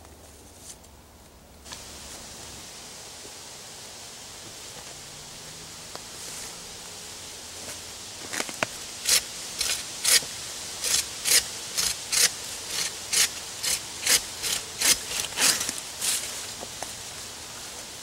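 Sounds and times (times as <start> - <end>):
bow saw rasping through wood: 9.0 - 15.8.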